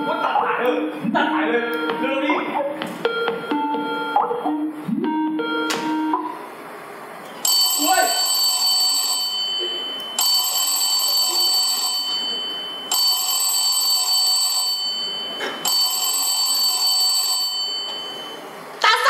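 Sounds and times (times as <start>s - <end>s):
telephone ringing: 7.4s - 18.5s.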